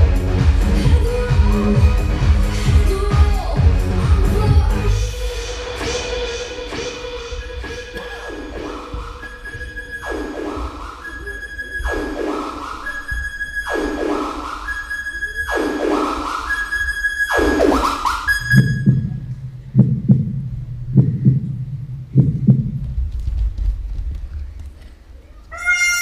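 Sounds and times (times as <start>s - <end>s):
deep pulsing bass beat: 0.0s - 14.8s, 17.3s - 23.5s
electronic dance music: 0.0s - 19.2s
falling pitch sweep: 4.9s - 19.6s.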